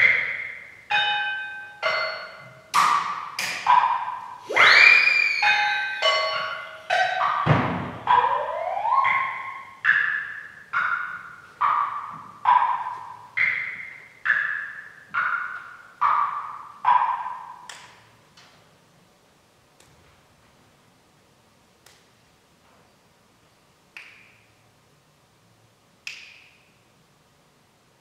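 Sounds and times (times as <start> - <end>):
bell-like struck tones: 0.9 - 17.6.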